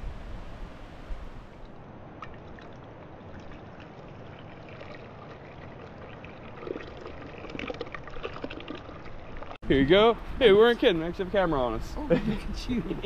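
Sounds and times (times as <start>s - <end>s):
liquid pouring into metal pot: 2.2s - 9.6s.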